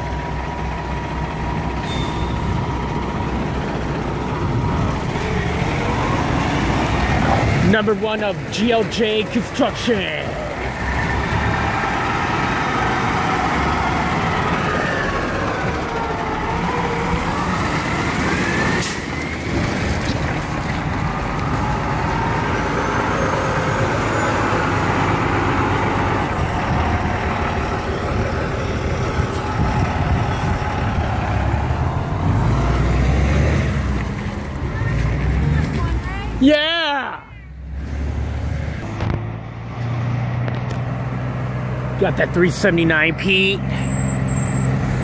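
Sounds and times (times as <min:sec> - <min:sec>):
diesel trucks passing: 0:00.0 - 0:45.0.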